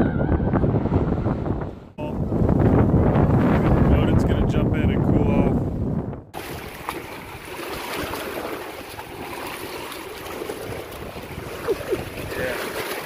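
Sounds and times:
wind on microphone: 0.0s - 13.0s
water lapping and splashing: 6.3s - 13.0s.

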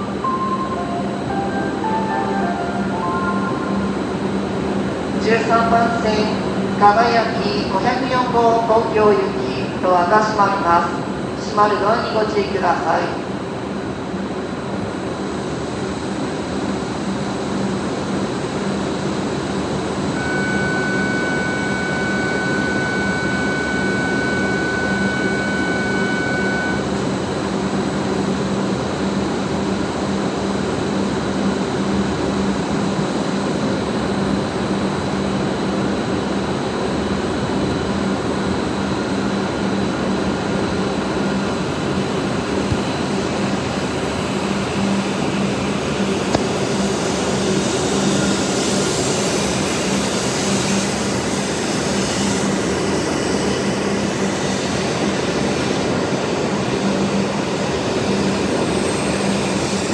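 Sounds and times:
steady high tone: 0.0s - 6.5s, 20.2s - 27.0s
train equipment whirr and hum: 0.0s - 59.9s.

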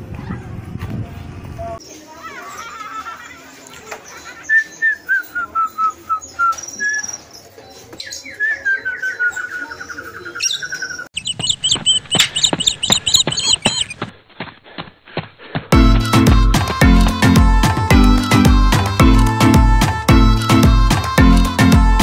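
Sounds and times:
birds chirping: 1.6s - 14.1s
bird chattering trill: 9.7s - 14.0s.

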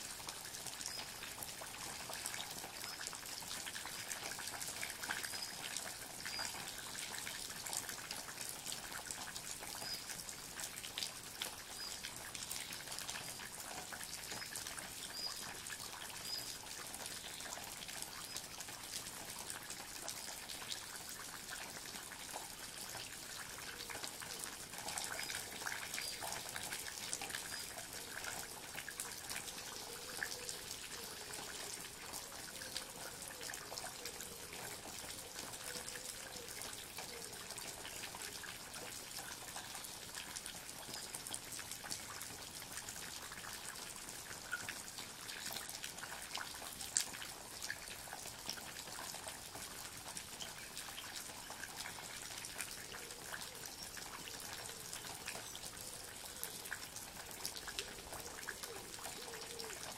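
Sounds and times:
steady rainfall: 0.0s - 59.9s.

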